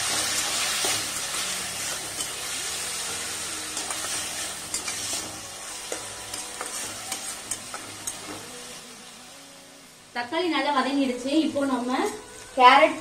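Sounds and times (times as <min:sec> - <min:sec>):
spatula scraping a pan: 0:00.0 - 0:08.4
vegetables sizzling in oil: 0:00.0 - 0:13.0.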